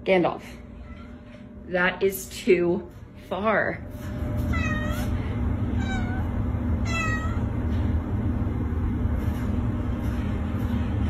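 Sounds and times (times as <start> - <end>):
steady low hum: 0.0 - 11.0
cat meowing: 4.5 - 7.5.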